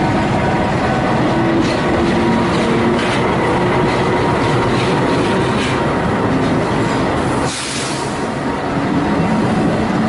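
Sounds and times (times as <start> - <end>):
wheels clacking over rail joints: 0.0 - 7.6
train wheels rumbling on rails: 0.0 - 10.0.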